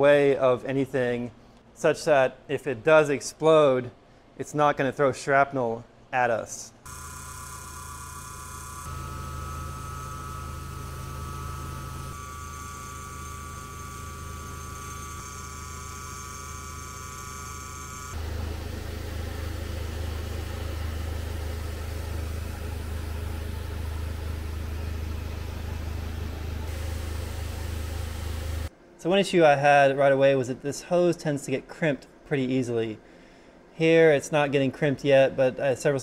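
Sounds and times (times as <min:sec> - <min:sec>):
milling machine whine: 0:06.9 - 0:28.7
machine hiss: 0:11.7 - 0:28.7
low hum: 0:18.0 - 0:29.0.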